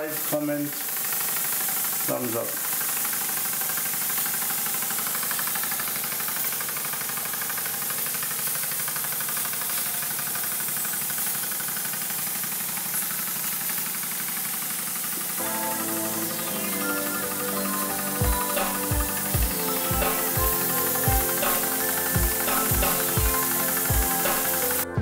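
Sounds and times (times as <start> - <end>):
model steam engine chuffing: 0.0 - 25.0
steam hissing: 0.0 - 25.0
music: 15.4 - 25.0.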